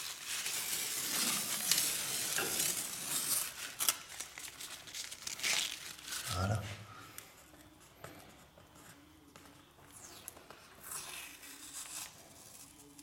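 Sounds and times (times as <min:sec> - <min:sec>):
masking tape being peeled: 0:00.0 - 0:06.6, 0:09.8 - 0:13.0.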